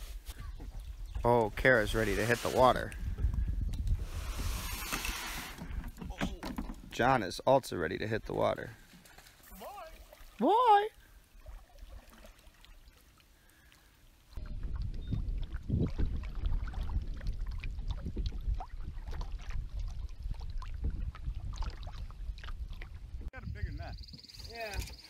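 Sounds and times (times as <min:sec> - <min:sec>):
water splashing against hull: 0:08.9 - 0:23.3.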